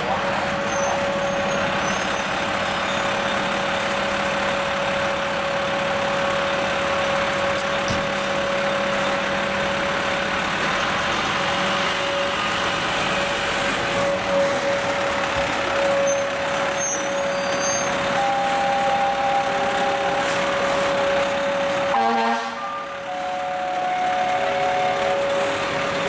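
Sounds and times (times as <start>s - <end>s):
diesel engine idling: 0.0s - 26.0s
steady high-pitched tone: 18.2s - 22.0s.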